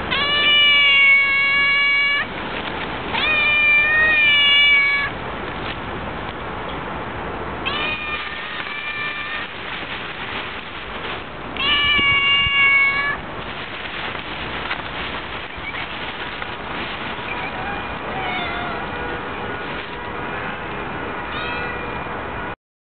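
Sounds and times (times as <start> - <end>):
cat meowing: 0.0 - 2.3, 3.1 - 5.2, 7.6 - 9.6, 11.6 - 13.2, 17.2 - 19.0, 21.3 - 22.2.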